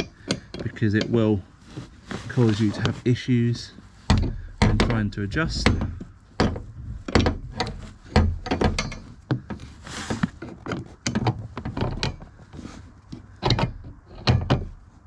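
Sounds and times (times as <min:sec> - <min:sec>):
short rustle: 0:00.7 - 0:04.1, 0:08.9 - 0:11.0
wiper arm clicks and knocks: 0:04.1 - 0:14.9.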